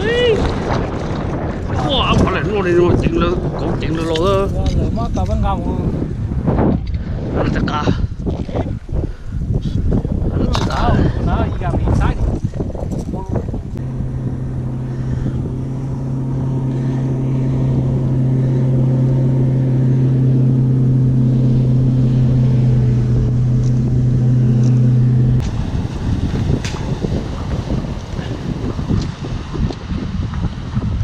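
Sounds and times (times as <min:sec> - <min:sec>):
water noise: 0:00.0 - 0:31.0
wind: 0:00.0 - 0:31.0
motor humming: 0:13.7 - 0:25.7.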